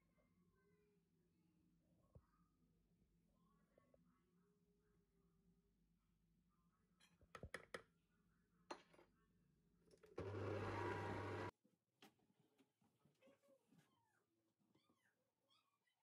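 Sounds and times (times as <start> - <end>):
stand mixer motor humming: 10.2 - 11.5.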